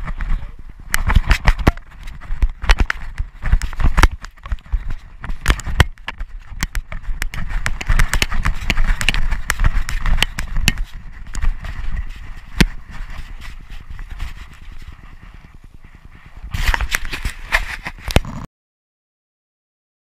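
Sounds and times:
wind rumble: 0.0 - 18.2
rubbing on microphone: 0.0 - 18.5
dog footfalls on grass: 1.0 - 15.4.

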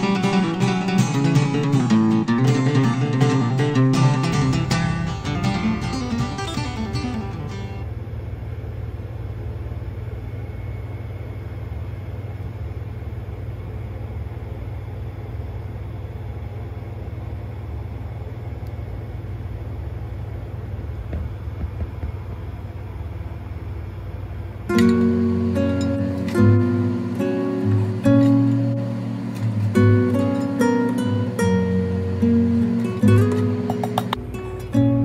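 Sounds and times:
low machine hum: 0.0 - 35.0
faint knocks: 21.1 - 22.7.

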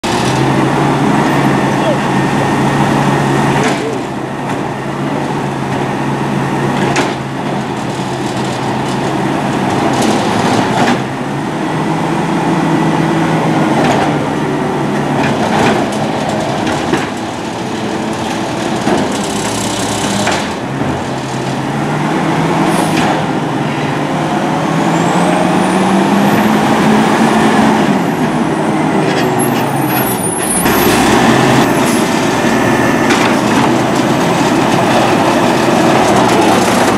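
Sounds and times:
garbage truck engine running: 0.0 - 36.9
clunks and knocks: 33.0 - 36.9.

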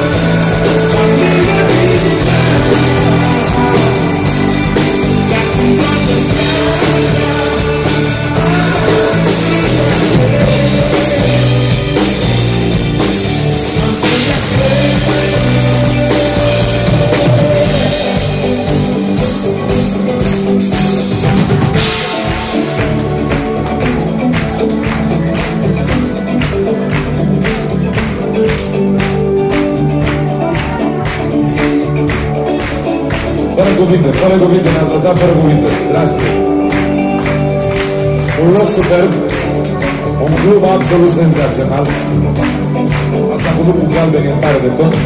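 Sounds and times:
man singing: 0.0 - 19.6, 33.4 - 36.6, 38.3 - 42.2, 43.2 - 45.0
live rock band playing: 0.0 - 45.0.

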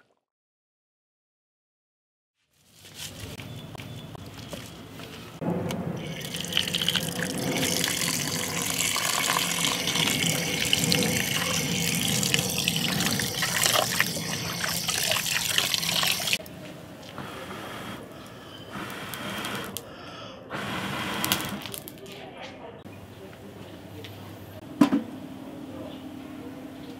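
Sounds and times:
water pouring and splashing: 6.0 - 16.4.

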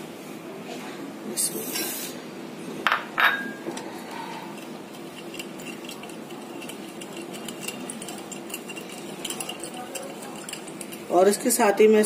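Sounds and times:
spoon clinking against glass bowl: 3.2 - 3.6, 4.5 - 11.1.

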